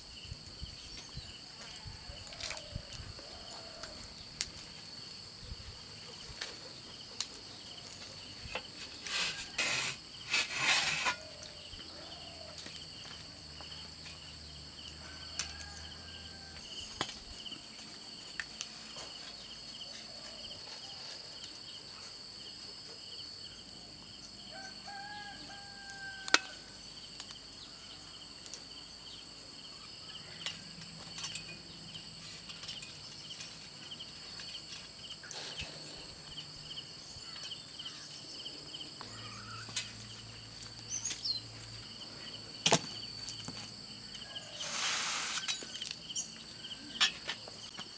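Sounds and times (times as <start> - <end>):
insect chorus buzzing: 0.0 - 47.9
metal skewers scraping: 8.8 - 11.4.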